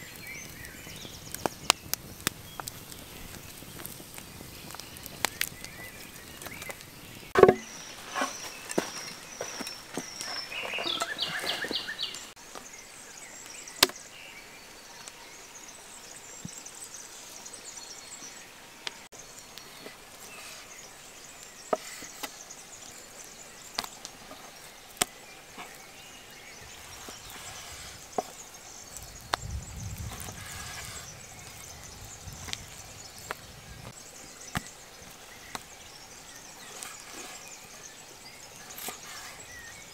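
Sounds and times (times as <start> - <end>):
stick prodding burning firewood: 0.0 - 39.9
knife knocking on wooden board: 7.4 - 7.7.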